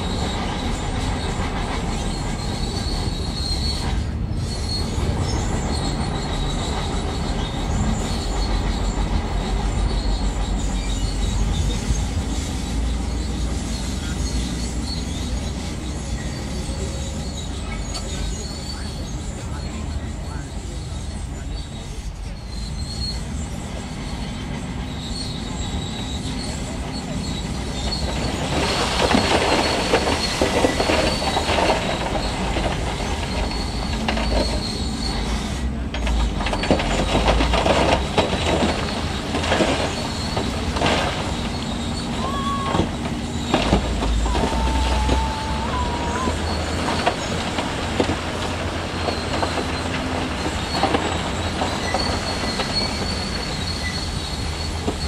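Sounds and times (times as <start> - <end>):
heavy diesel machinery engine running: 0.0 - 55.0
thin high squeal: 39.9 - 47.7.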